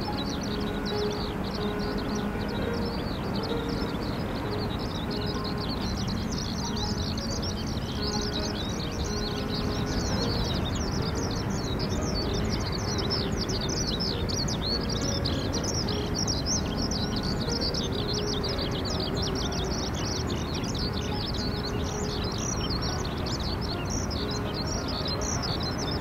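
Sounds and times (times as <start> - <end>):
low background rush: 0.0 - 26.0
small birds chirping: 0.0 - 26.0.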